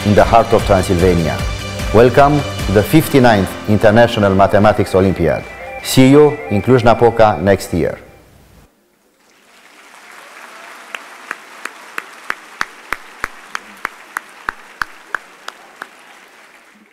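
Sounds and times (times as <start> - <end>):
audience applauding in hall: 9.2 - 16.9
person clapping loudly and evenly: 10.2 - 16.9.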